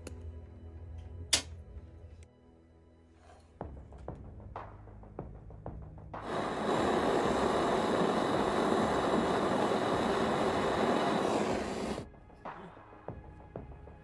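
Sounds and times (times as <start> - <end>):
gas torch flame hissing: 6.2 - 12.1.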